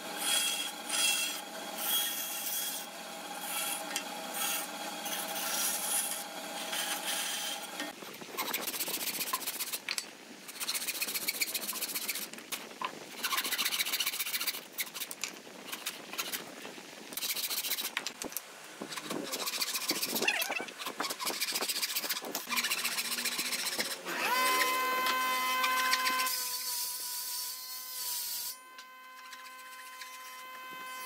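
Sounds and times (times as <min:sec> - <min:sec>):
hand saw rasping through wood: 0:18.9 - 0:20.2, 0:21.0 - 0:26.5
band saw humming: 0:22.1 - 0:31.0.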